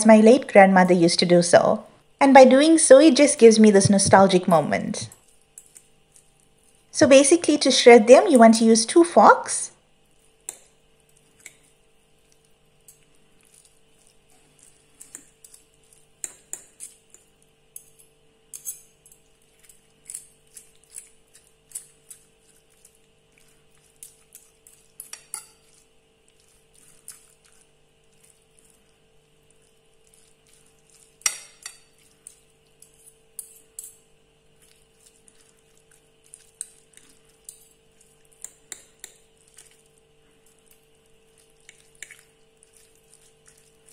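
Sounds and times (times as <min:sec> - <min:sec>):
forks clinking on ceramic plate: 0:31.2 - 0:34.0.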